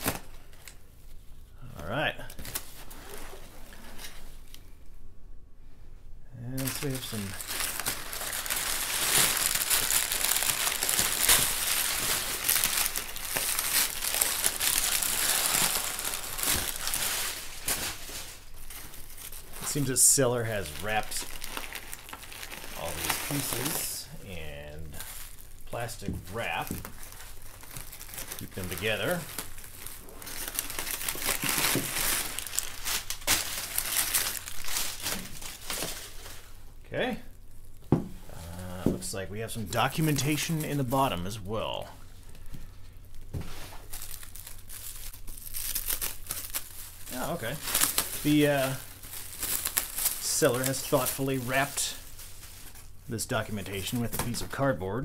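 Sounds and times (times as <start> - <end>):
packing paper crinkling: 0.0 - 1.2, 6.5 - 36.6, 39.5 - 54.7
plastic wrap rustling: 0.0 - 1.3, 2.3 - 4.6, 6.5 - 54.8.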